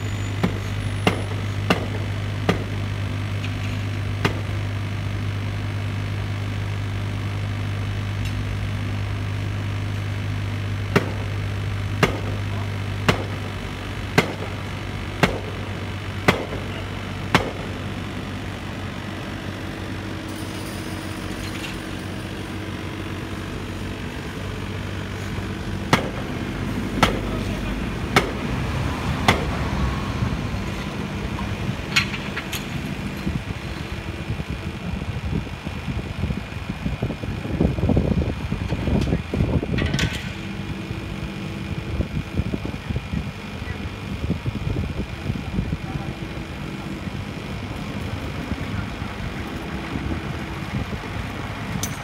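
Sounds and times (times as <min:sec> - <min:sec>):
diesel engine running: 0:00.0 - 0:52.0
sharp knocks: 0:00.4 - 0:02.8, 0:10.9 - 0:11.3, 0:12.0 - 0:12.4, 0:13.0 - 0:13.5, 0:25.9 - 0:26.3, 0:27.0 - 0:27.3.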